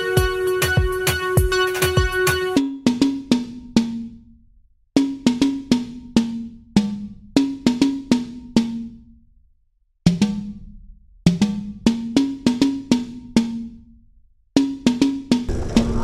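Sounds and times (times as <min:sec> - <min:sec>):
tom drum hits: 0:15.5 - 0:16.0.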